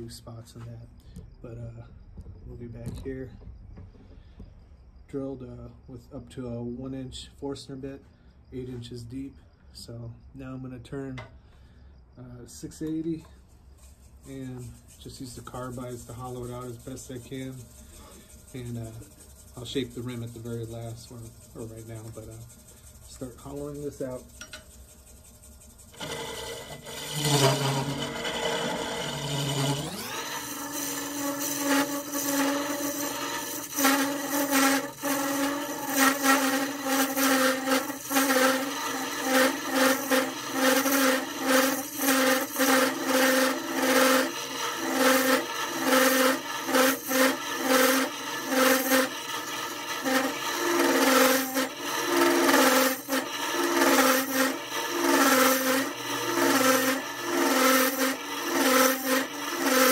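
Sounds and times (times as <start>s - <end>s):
tool rasping into wood: 13.8s - 59.9s
wood lathe motor running: 14.6s - 59.9s.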